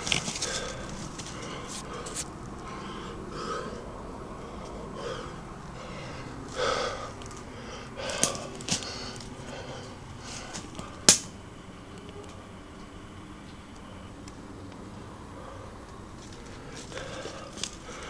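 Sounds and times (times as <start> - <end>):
person breathing heavily: 0.0 - 11.9, 14.9 - 18.0.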